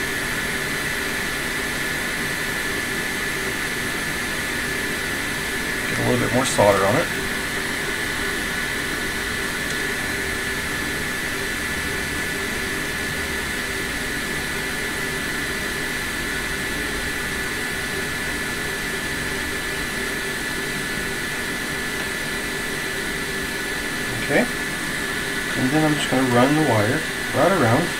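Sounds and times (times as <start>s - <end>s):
high whine: 0.0s - 27.9s
small fan whirring: 0.0s - 27.9s.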